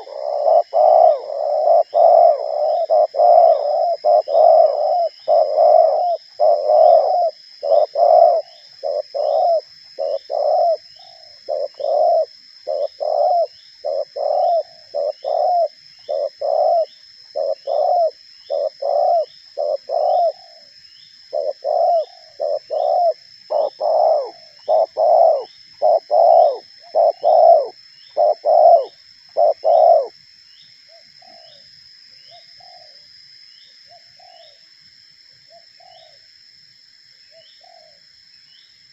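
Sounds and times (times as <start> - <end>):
dove cooing: 0.0 - 20.7, 21.3 - 30.1, 32.6 - 33.0, 37.6 - 38.0.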